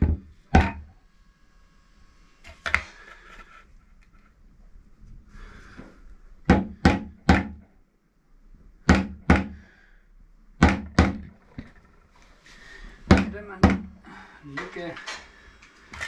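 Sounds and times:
mallet knocking on concrete block: 0:06.5 - 0:07.6, 0:08.9 - 0:09.6, 0:13.1 - 0:13.9.

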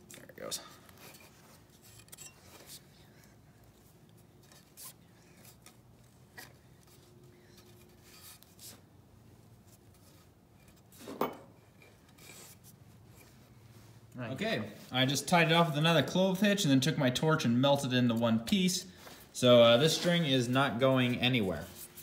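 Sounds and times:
rubbing of cord being tied: 0:00.8 - 0:08.9.

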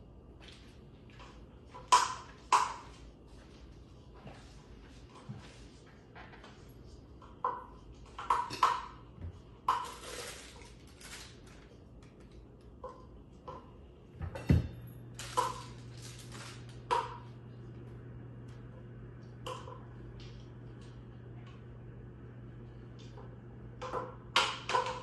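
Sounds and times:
low steady hum: 0:00.0 - 0:25.0
scraping rustle: 0:09.9 - 0:11.6.

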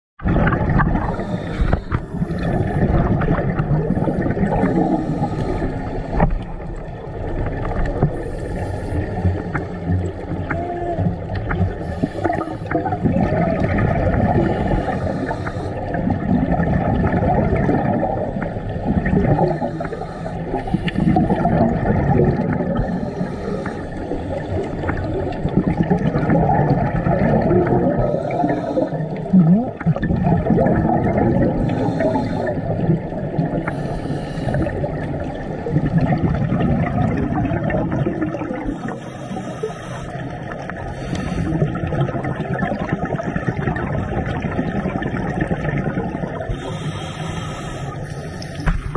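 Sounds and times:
exhaled air bubbling: 0:00.2 - 0:48.9
regulator inhalation hiss: 0:33.7 - 0:34.8, 0:46.5 - 0:48.7.

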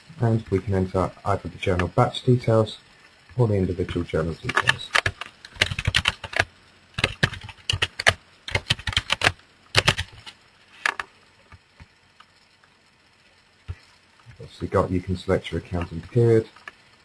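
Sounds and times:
typing on computer keyboard: 0:04.5 - 0:11.1.

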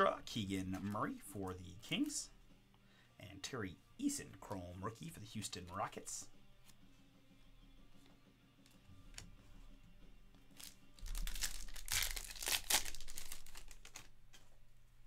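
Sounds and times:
foil wrapper crackling: 0:10.5 - 0:14.2
cards clicking: 0:11.4 - 0:14.5.

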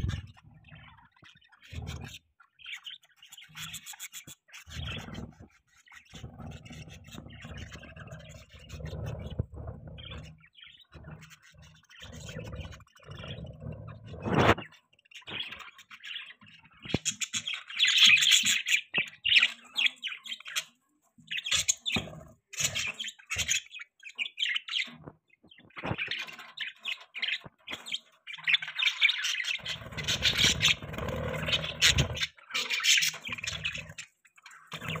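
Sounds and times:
budgerigars chattering: 0:15.2 - 0:25.0, 0:25.6 - 0:35.0.

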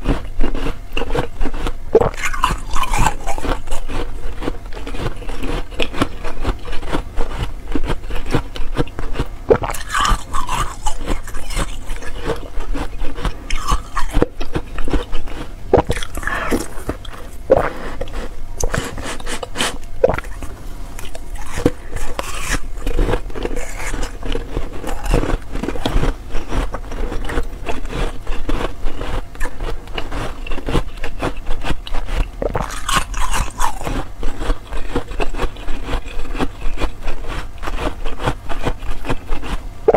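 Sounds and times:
crunching and chewing ice: 0:00.0 - 0:39.9.

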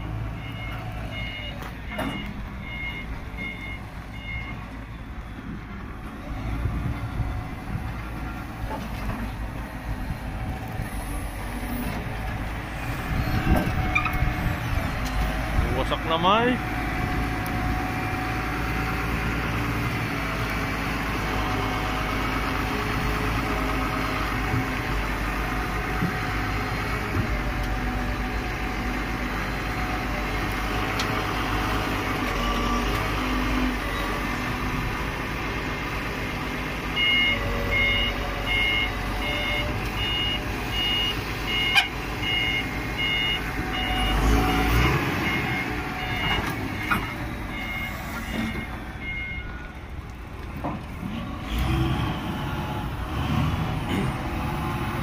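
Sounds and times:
reversing alarm beeping: 0:00.3 - 0:05.6, 0:37.0 - 0:49.8.

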